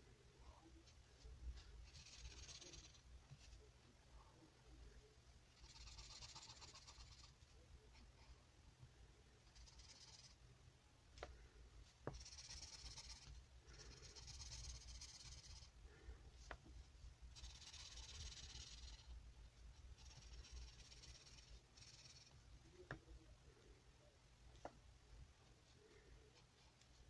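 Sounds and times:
marker scratching on paper: 1.8 - 3.7, 5.6 - 8.1, 12.1 - 15.7, 17.4 - 19.1, 19.8 - 22.4.

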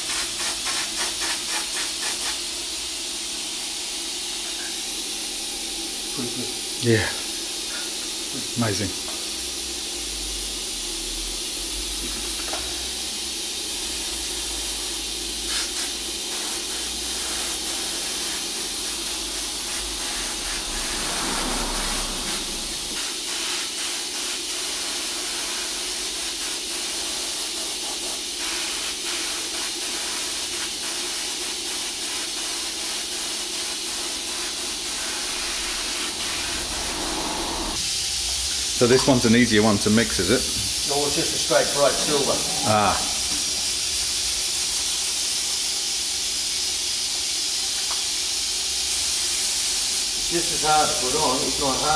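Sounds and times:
airbrush air hiss: 0.0 - 51.9
low steady hum: 19.6 - 23.0.

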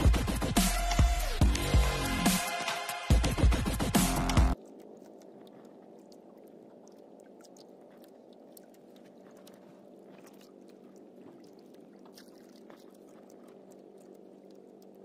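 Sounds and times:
sea wash: 0.0 - 15.0
wind: 3.9 - 15.0.

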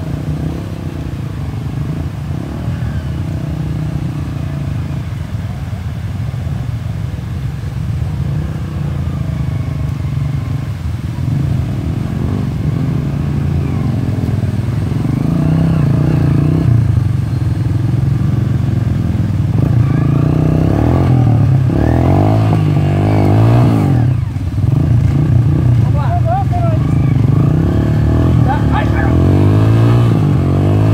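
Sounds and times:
dirt bike engine revving: 11.2 - 30.9.

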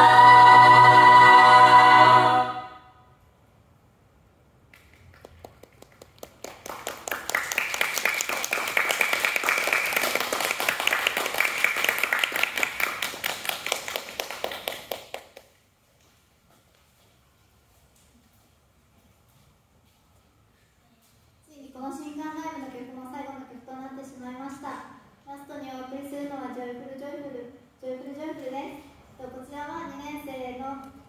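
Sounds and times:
choir holding a chord: 0.0 - 3.0
audience applause: 5.2 - 15.2.

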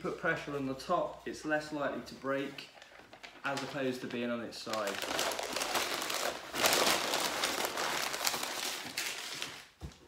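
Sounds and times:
packing paper rustling: 2.2 - 10.0.

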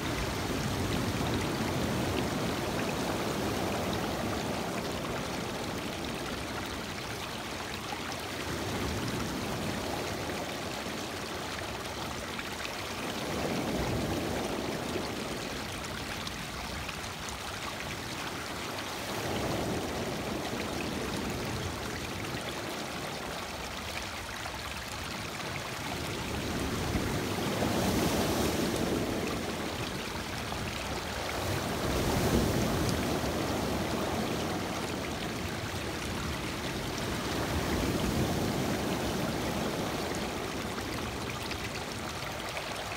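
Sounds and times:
waves washing over pebbled shore: 26.0 - 42.1.

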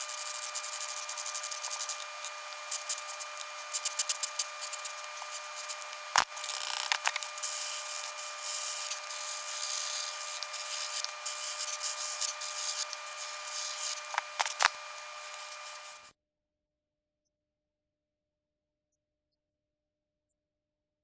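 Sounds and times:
pencil scratching on paper: 0.0 - 16.0.

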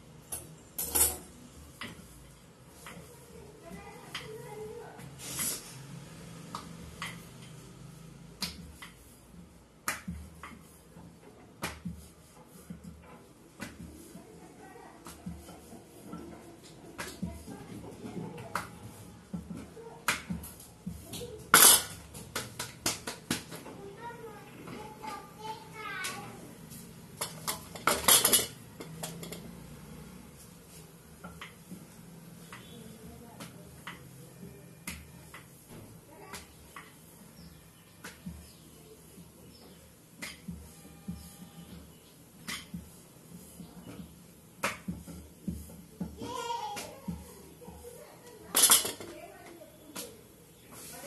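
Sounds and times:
steel kitchenware clattering: 27.2 - 29.4, 48.5 - 49.1.

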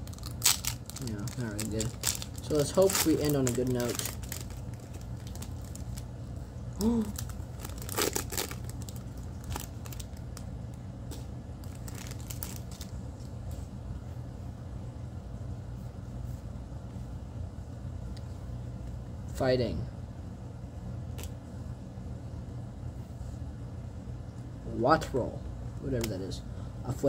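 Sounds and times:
foil wrapper crinkling and tearing: 0.0 - 6.1, 6.9 - 10.5, 11.6 - 13.0
steady low hum: 0.0 - 27.0.

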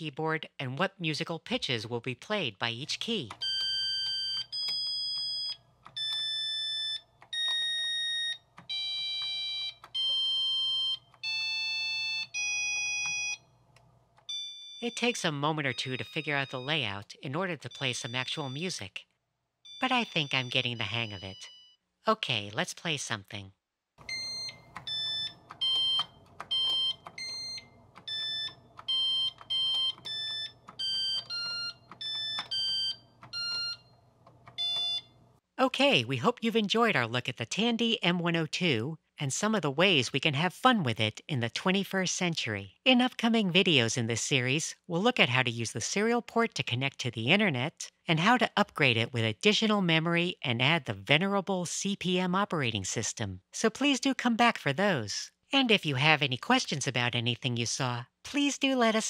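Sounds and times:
computer beeper melody: 14.3 - 17.0.

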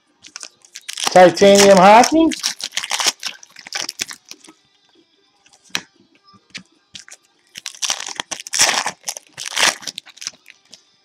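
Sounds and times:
plastic wrapper tearing and crinkling: 0.2 - 4.5, 7.0 - 10.8.

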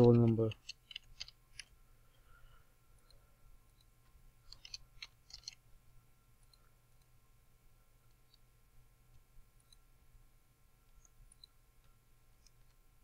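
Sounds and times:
mouse clicks: 4.5 - 5.6.

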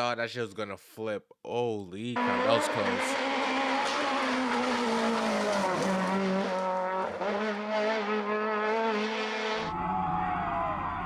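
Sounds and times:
rally car engine revving: 2.2 - 9.7.

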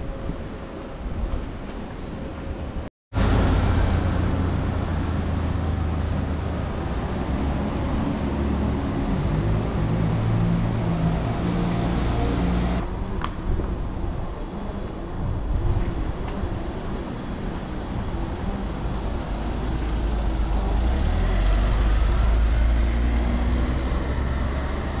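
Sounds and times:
road traffic rumble: 0.0 - 25.0.

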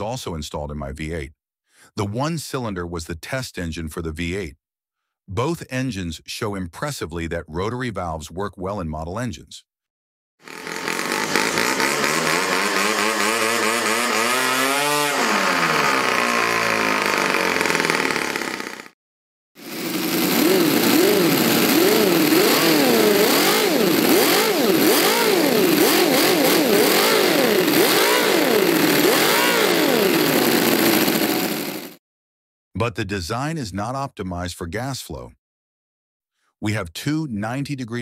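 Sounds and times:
model engine revving up and down: 10.4 - 19.0, 19.6 - 32.0
model engine running: 10.4 - 19.0, 19.6 - 32.0.

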